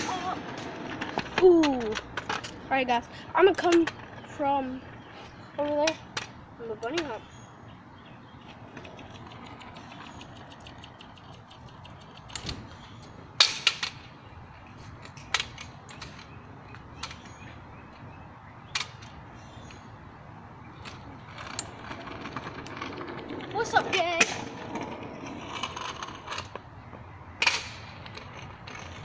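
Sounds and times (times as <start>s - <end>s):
kick scooter clattering on asphalt: 0.0s - 7.4s, 8.0s - 14.2s, 20.6s - 29.0s.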